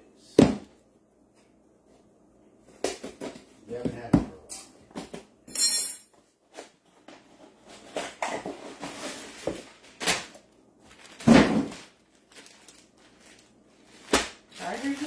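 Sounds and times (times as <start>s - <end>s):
plastic bag rustling: 8.6s - 15.0s.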